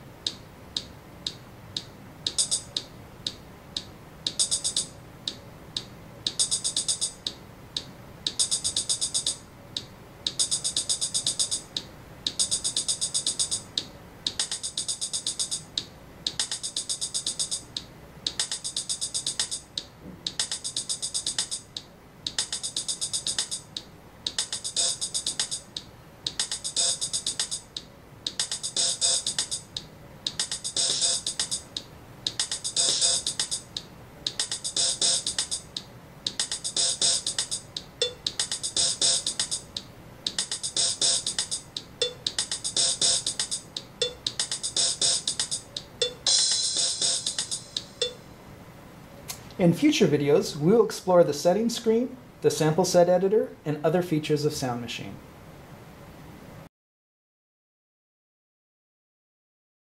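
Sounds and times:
drum machine loop: 0.0 - 48.4
rapid hi-hat hits: 0.2 - 48.3
bass drum and snare: 0.3 - 48.2.

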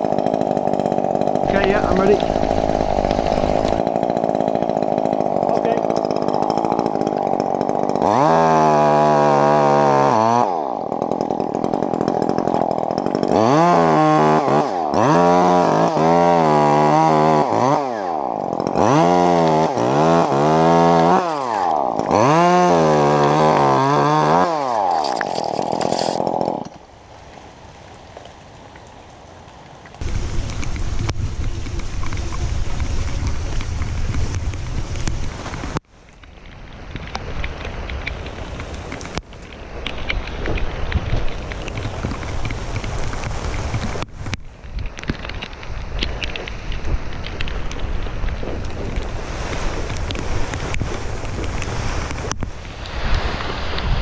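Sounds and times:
chainsaw revving: 0.0 - 26.8
rain: 26.7 - 54.0
wind noise on microphone: 30.0 - 35.8, 36.6 - 54.0.

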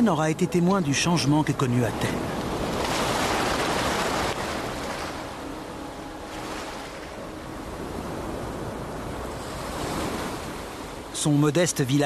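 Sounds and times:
sea waves breaking on pebbles: 2.4 - 5.3.

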